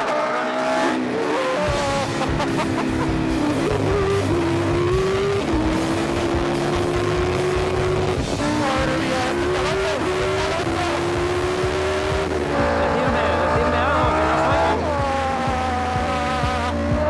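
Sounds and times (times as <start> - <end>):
background music: 0.0 - 17.0
racing car engine at speed: 0.0 - 17.0.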